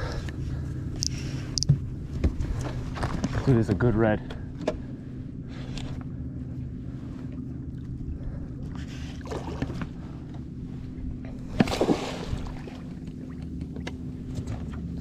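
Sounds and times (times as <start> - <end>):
sharp knock and splash: 11.6 - 12.3.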